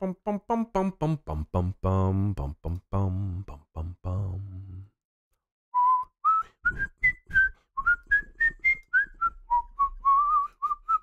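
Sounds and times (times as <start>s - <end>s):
man whistling a tune: 5.7s - 11.0s.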